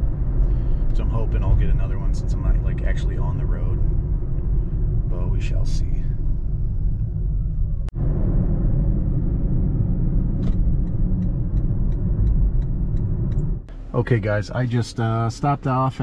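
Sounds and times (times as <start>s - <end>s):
road and tyre rumble: 0.0s - 16.0s
turn signal clicking: 10.3s - 13.8s.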